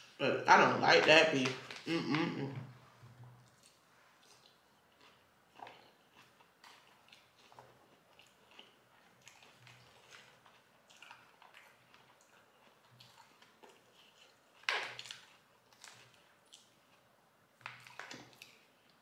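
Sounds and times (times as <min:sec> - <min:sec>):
chewing: 0:03.4 - 0:19.0.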